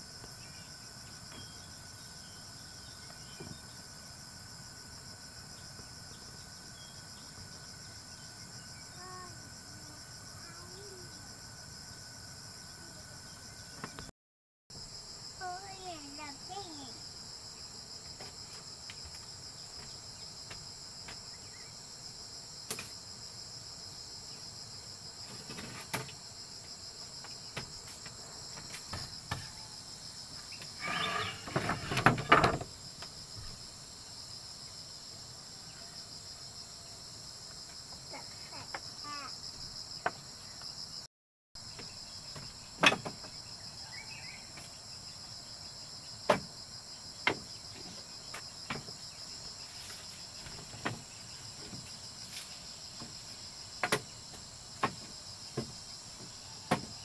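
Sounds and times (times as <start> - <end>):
insects chirring: 0.0 - 14.1, 14.8 - 57.0.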